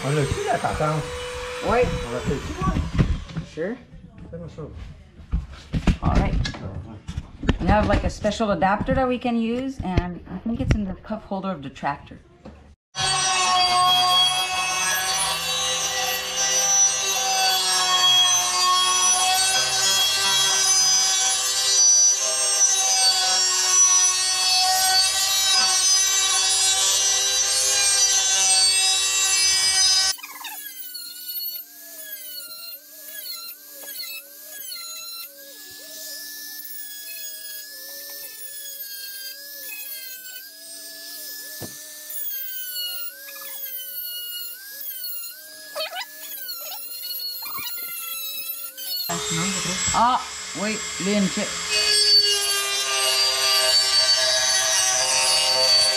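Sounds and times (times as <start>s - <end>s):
power tool whine: 0.0s - 3.7s, 12.9s - 55.9s
metal grinding: 13.0s - 55.9s.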